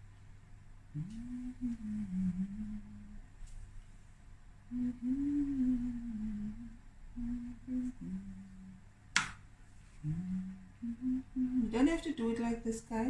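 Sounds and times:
woman humming a slow tune: 0.9 - 3.3, 4.7 - 8.9, 10.0 - 12.0.

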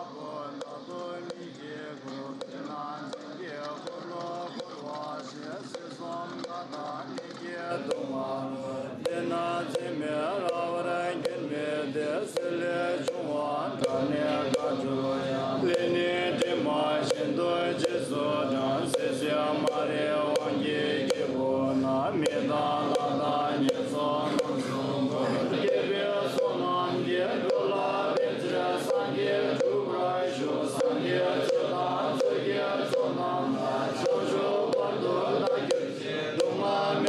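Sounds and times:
person chanting: 0.0 - 37.0
wooden fish drum knocks: 34.1 - 36.6.

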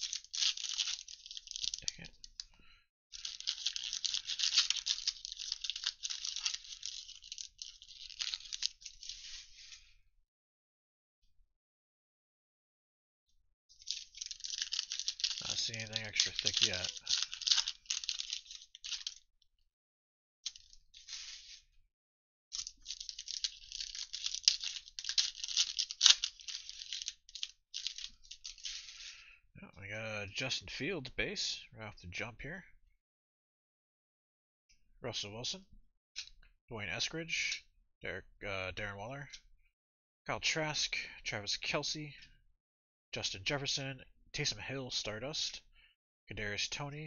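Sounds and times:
foil wrapper tearing and crinkling: 0.0 - 2.4, 3.2 - 9.8, 13.8 - 19.2, 22.6 - 29.1.

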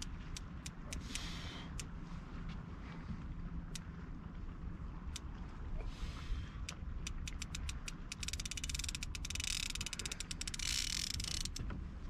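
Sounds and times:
fishing reel clicking: 0.0 - 1.9, 6.6 - 11.6.

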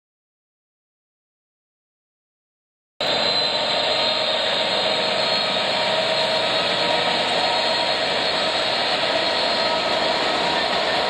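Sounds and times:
diesel locomotive engine working: 3.0 - 11.0.

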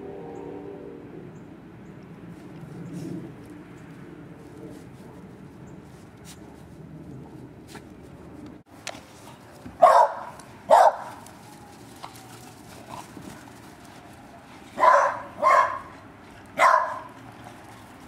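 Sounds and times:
dog barking: 9.8 - 11.2, 14.8 - 16.0, 16.6 - 17.2.

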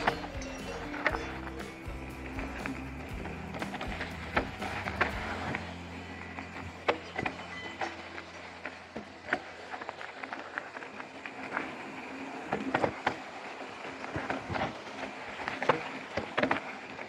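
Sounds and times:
bike rattling over rocks: 0.0 - 17.0.

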